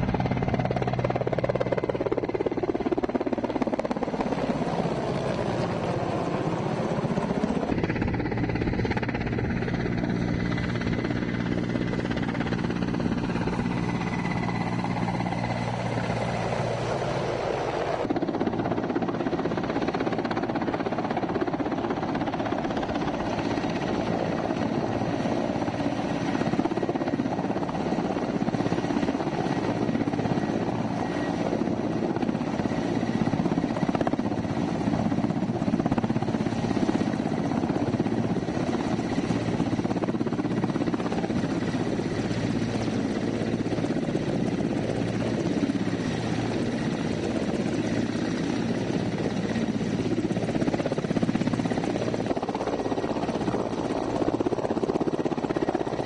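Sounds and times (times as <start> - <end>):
faint turbine whine: 0.0 - 56.0
helicopter rotor and engine noise: 0.0 - 56.0.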